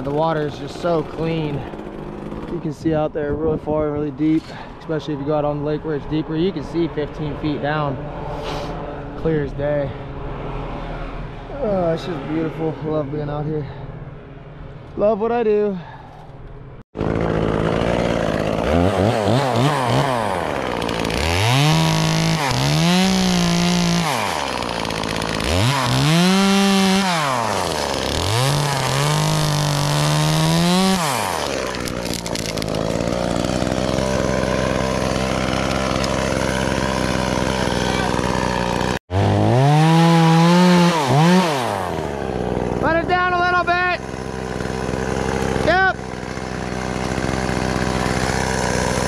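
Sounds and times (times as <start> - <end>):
chainsaw revving and cutting: 0.0 - 2.9, 17.0 - 49.0.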